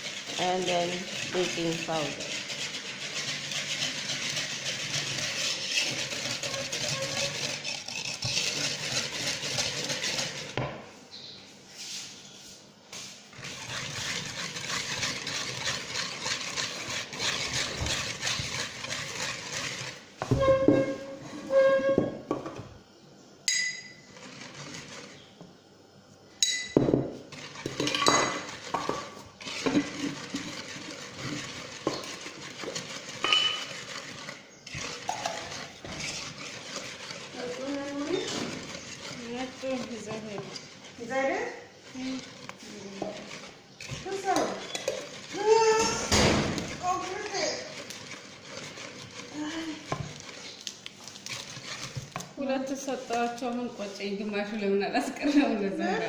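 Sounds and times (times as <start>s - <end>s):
wire whisk beating batter: 0.0s - 10.6s, 13.3s - 21.7s, 23.8s - 25.3s, 27.2s - 56.0s
kitchenware clinking and knocking: 26.4s - 30.5s, 33.2s - 33.7s.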